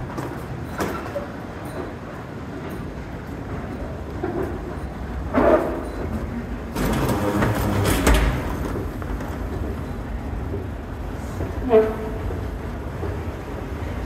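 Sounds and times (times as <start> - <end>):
escalator rumble: 3.1 - 14.0.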